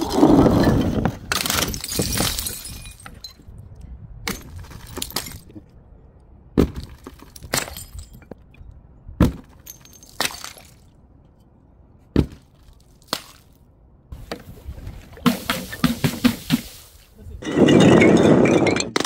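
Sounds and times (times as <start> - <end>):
glass breaking: 1.3 - 3.3, 17.4 - 19.0.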